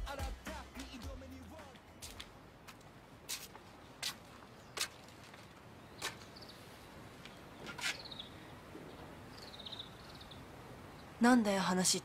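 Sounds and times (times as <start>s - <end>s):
small birds chirping: 4.2s - 11.9s.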